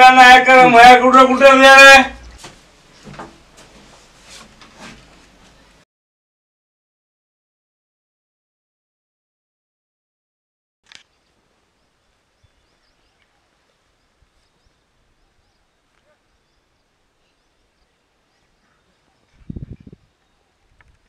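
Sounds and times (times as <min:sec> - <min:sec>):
faint outdoor ambience: 0:00.0 - 0:05.8, 0:10.8 - 0:21.0
faint bird chirps: 0:11.0 - 0:20.8.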